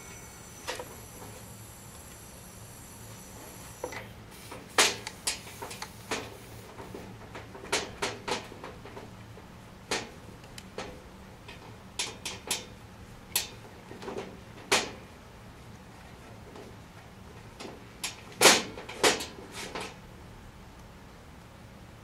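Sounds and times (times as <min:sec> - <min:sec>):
low steady hum: 0:00.0 - 0:07.6.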